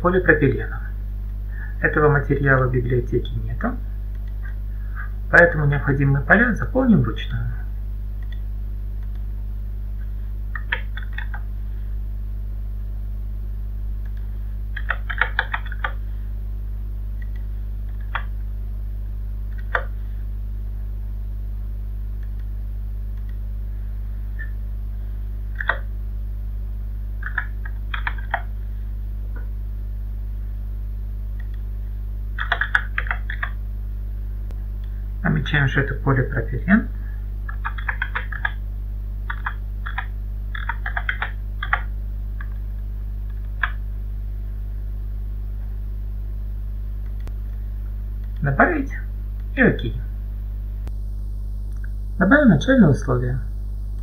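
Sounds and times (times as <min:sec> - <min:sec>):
steady low hum: 0:00.0 - 0:54.0
keyboard typing: 0:10.5 - 0:11.4, 0:14.1 - 0:16.0, 0:17.2 - 0:18.3, 0:19.5 - 0:19.9, 0:25.5 - 0:25.9, 0:27.2 - 0:28.5, 0:32.4 - 0:33.6, 0:37.5 - 0:38.6, 0:39.3 - 0:42.6, 0:43.3 - 0:43.8.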